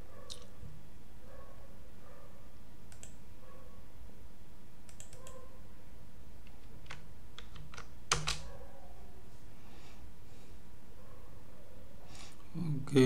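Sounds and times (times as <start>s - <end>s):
computer keys clicking: 2.9s - 3.2s, 4.9s - 5.4s, 6.5s - 8.5s.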